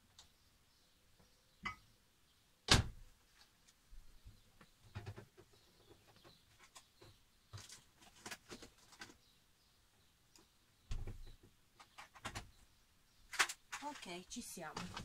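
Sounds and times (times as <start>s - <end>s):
clicks and knocks of items handled: 4.9s - 9.2s, 13.3s - 14.1s, 14.7s - 15.0s.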